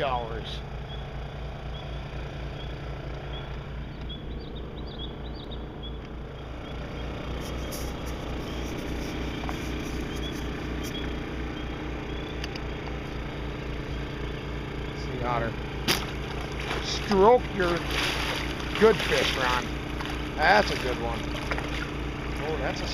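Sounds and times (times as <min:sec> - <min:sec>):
small engine throbbing hum: 0:00.0 - 0:22.9
faint high chirps: 0:01.7 - 0:13.0.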